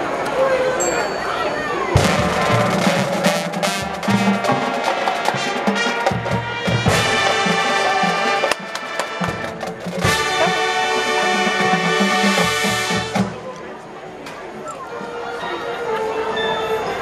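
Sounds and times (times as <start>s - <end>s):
marching drums and percussion: 1.9s - 13.6s
brass chords: 1.9s - 14.2s.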